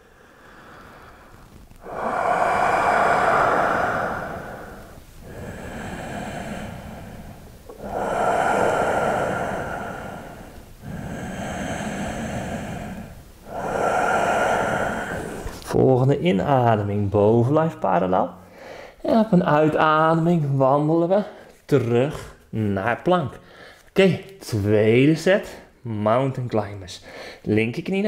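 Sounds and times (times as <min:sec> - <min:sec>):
man breathing deeply: 0:00.0 - 0:15.8, 0:18.5 - 0:19.0, 0:23.4 - 0:23.9, 0:27.0 - 0:27.5.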